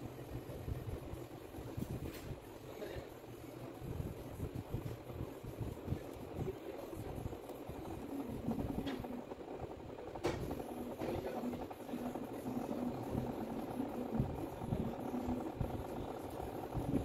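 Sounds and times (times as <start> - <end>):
low rumble and hum: 0.0 - 17.0.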